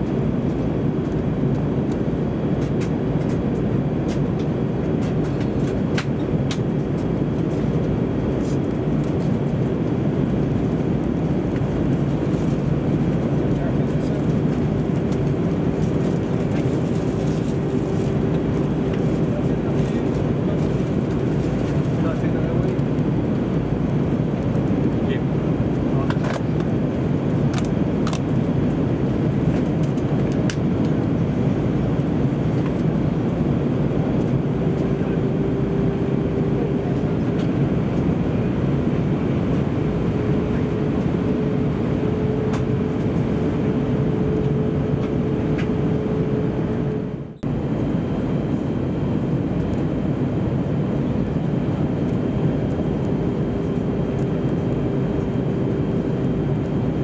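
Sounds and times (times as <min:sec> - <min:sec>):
airplane cabin engine rush: 0:00.0 - 0:57.0.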